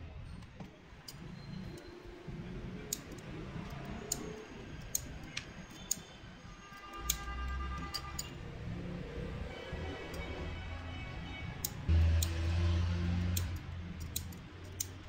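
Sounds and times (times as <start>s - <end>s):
nippers clicking and snipping metal: 2.8s - 6.1s, 6.7s - 8.4s, 11.5s - 12.4s, 13.1s - 15.0s.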